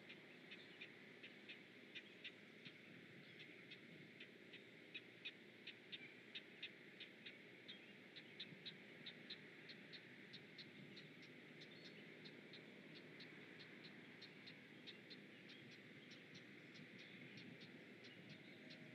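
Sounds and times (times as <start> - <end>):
low steady hiss: 0.0 - 18.9.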